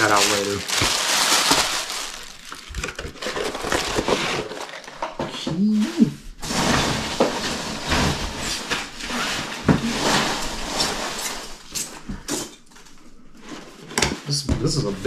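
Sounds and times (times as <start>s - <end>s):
rustling: 0.0s - 15.0s
cardboard boxes scraping and knocking: 6.4s - 12.4s.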